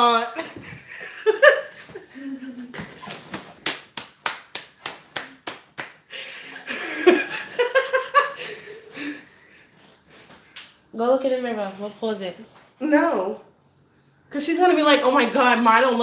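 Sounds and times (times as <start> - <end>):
hand claps: 2.8 - 6.6
woman laughing: 6.2 - 9.2.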